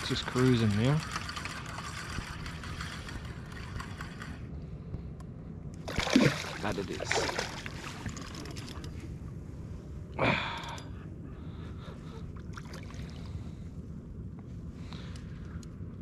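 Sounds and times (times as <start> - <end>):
person gasping: 10.2 - 10.9.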